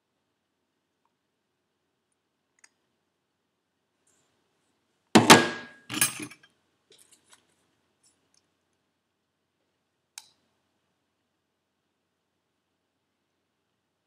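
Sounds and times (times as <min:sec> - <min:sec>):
metal objects clattering: 0:05.2 - 0:06.5.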